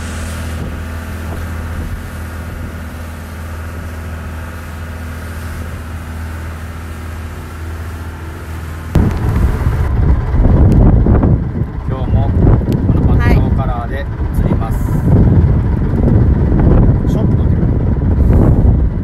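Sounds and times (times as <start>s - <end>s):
wind on microphone: 0.0s - 4.0s, 8.9s - 19.0s
boat engine droning: 0.0s - 19.0s
water rushing along hull: 0.0s - 19.0s.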